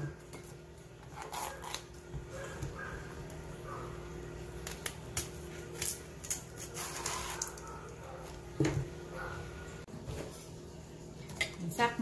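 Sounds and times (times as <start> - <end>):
blade scraping gourd skin: 1.0 - 2.0, 5.7 - 7.6.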